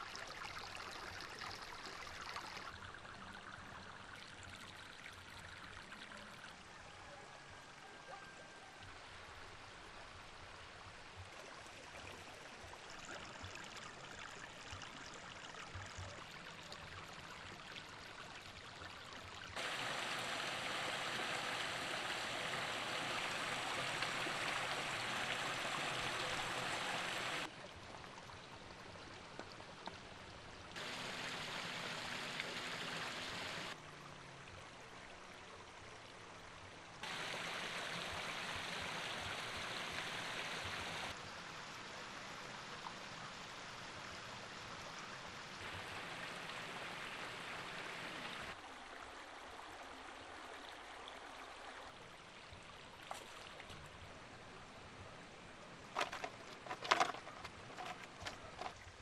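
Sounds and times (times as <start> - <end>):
water splashing into pond: 0.0 - 6.4, 11.3 - 30.0, 30.7 - 34.6, 37.0 - 42.0, 45.5 - 51.9, 52.6 - 54.0, 55.8 - 59.0.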